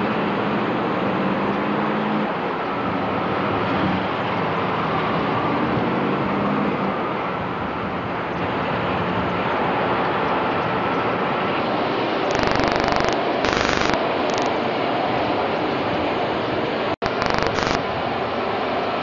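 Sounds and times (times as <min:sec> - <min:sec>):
rushing noise: 0:11.4 - 0:16.3, 0:17.0 - 0:19.0.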